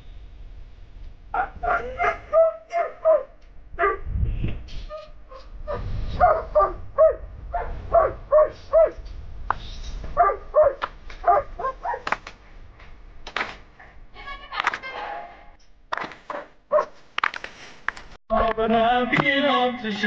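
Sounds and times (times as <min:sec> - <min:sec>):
dog barking: 0:01.4 - 0:04.0, 0:04.9 - 0:09.0, 0:10.2 - 0:12.1, 0:16.3 - 0:16.9
low rumble: 0:03.5 - 0:10.6.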